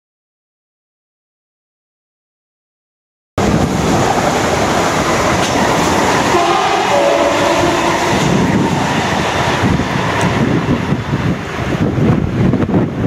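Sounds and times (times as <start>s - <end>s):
trains passing rush: 3.4s - 13.0s.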